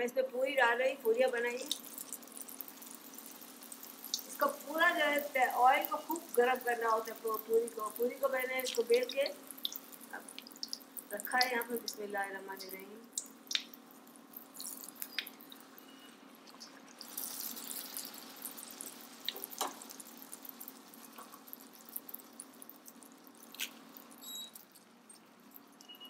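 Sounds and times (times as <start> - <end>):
dough sizzling in hot oil: 0.4 - 26.0.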